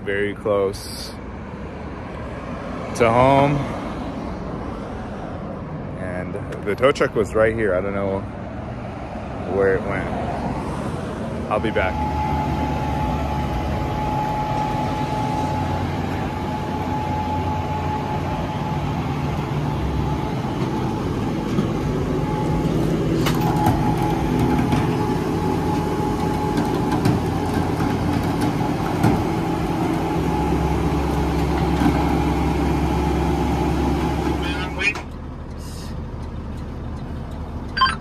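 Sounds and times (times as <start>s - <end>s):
truck engine running: 10.9s - 38.0s.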